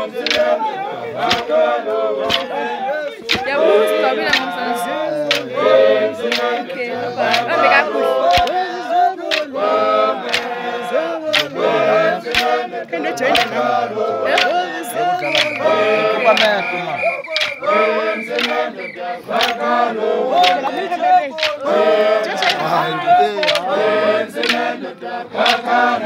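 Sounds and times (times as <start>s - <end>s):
men singing and chanting: 0.0s - 26.0s
sharp knocks: 8.3s - 8.5s.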